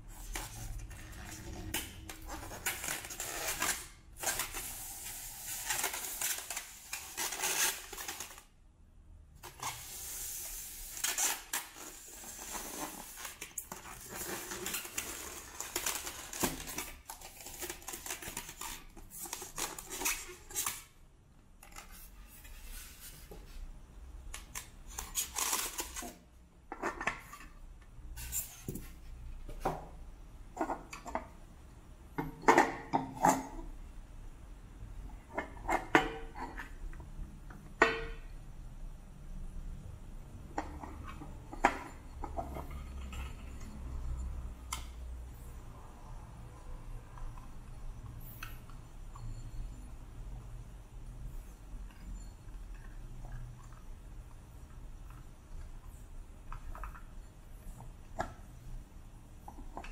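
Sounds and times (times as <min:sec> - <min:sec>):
polystyrene foam creaking and scraping: 0:00.0 - 0:08.5, 0:09.4 - 0:20.9, 0:24.5 - 0:26.2.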